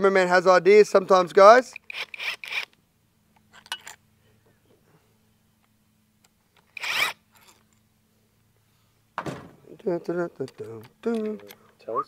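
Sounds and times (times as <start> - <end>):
steady low hum: 0.0 - 12.0
cordless drill spinning a bolt: 1.7 - 2.8, 6.6 - 7.6.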